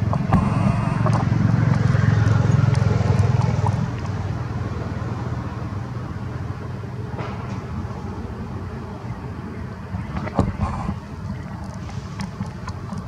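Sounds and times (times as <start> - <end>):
vehicle engine drone: 0.0 - 13.0.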